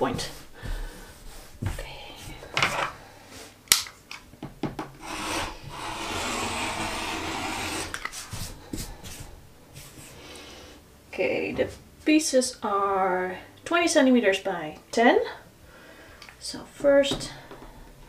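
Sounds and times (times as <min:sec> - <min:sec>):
rotary cutter cutting fabric: 0:05.0 - 0:08.2.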